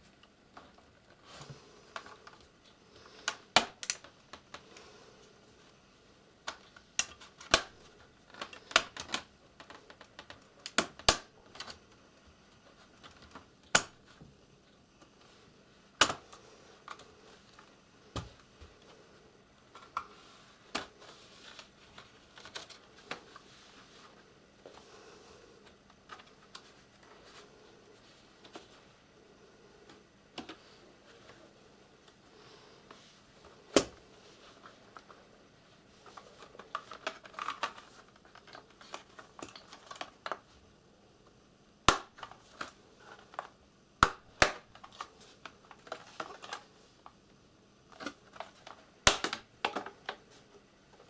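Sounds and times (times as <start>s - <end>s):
plastic clips clicking loose: 3.2s - 4.6s, 6.5s - 7.7s, 8.3s - 11.8s.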